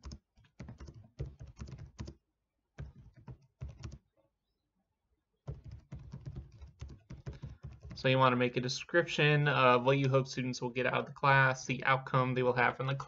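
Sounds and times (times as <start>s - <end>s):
typing on computer keyboard: 0.0s - 2.2s, 2.8s - 4.0s, 5.5s - 8.1s.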